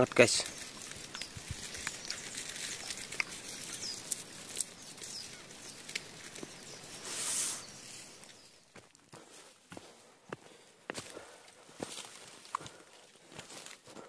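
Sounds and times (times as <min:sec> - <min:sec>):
rushing rustle: 0:00.0 - 0:09.5
steady hiss: 0:05.9 - 0:08.4.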